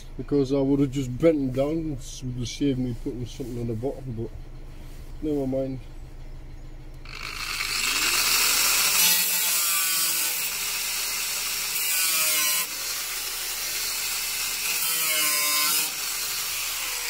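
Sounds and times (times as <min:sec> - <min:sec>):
angle grinder cutting sheet steel: 0:07.1 - 0:17.0.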